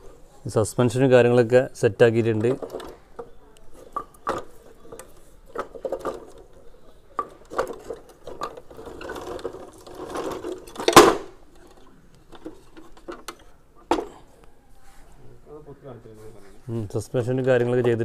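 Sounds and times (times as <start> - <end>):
wooden toy parts clicking: 2.4 - 6.6, 7.2 - 14.1.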